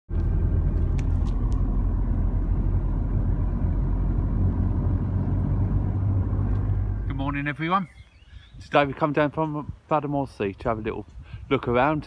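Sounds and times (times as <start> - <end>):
car road and engine rumble: 0.1 - 7.7.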